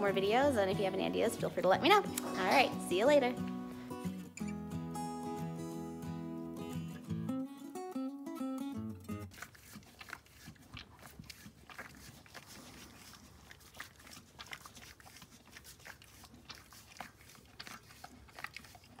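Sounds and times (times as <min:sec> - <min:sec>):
horse licking and gnawing: 0:09.1 - 0:19.0.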